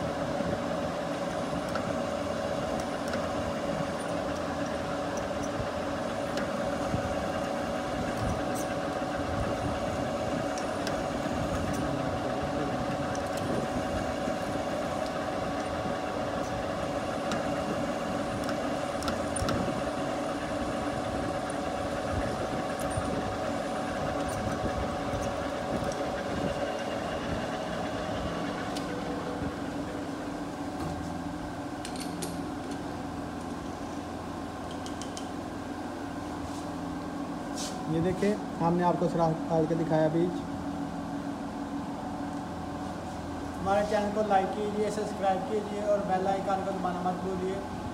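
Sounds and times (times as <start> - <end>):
metal lathe drilling hum: 0.0 - 31.6.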